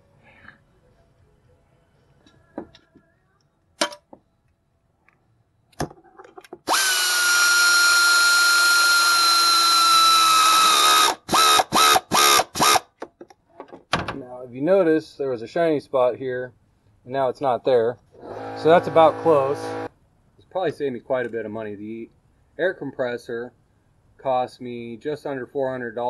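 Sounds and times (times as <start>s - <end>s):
power drill running: 6.7s - 12.8s, 18.2s - 19.9s.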